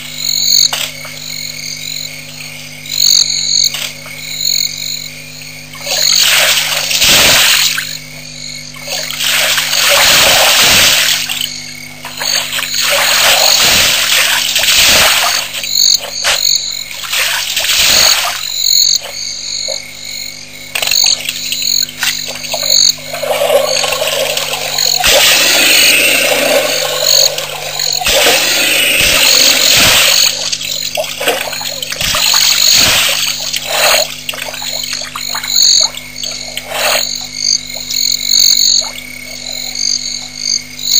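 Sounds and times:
frogs croaking: 0.0 - 40.9
elephant splashing water: 12.2 - 15.6, 23.1 - 34.8.

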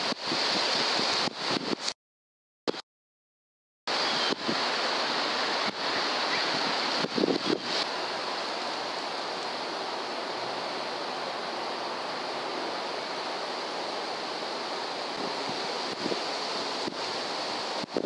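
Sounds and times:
steady background hiss: 3.9 - 18.0.

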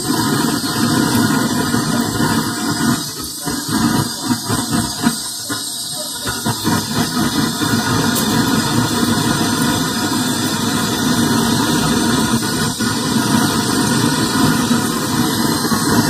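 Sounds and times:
gas torch hissing flame: 0.0 - 16.0.

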